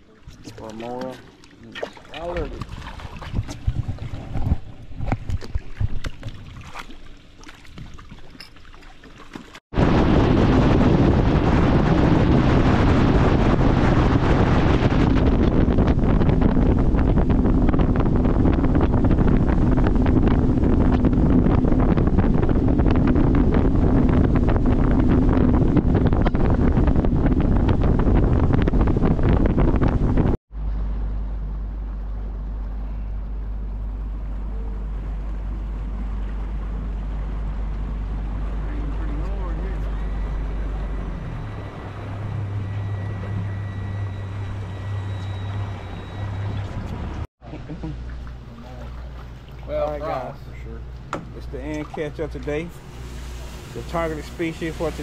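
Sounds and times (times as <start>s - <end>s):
wind buffeting microphone: 2.2s - 6.8s, 9.7s - 30.4s
boat engine drone: 9.8s - 55.0s.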